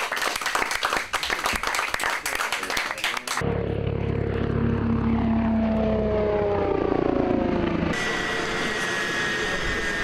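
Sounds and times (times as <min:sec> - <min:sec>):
helicopter passing by: 0:03.3 - 0:10.0
turbine whine: 0:03.4 - 0:10.0.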